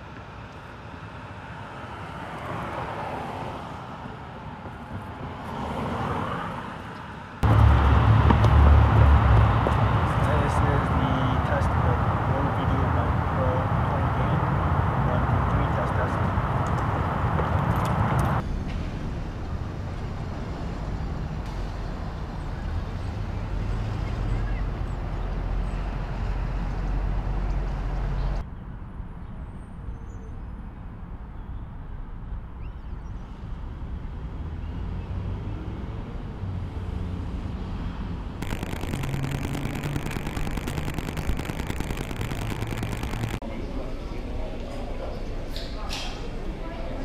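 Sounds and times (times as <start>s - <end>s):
passing car tyres and engine: 0.0s - 24.1s
rumble of traffic: 0.0s - 47.0s
loud rushing noise: 7.4s - 10.2s, 38.4s - 43.4s
steady low rumble: 38.4s - 43.4s.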